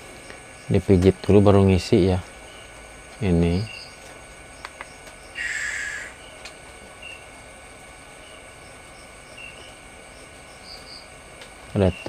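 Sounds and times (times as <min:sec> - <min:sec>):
high thin insect chirps: 0:02.3 - 0:07.4, 0:08.1 - 0:12.0.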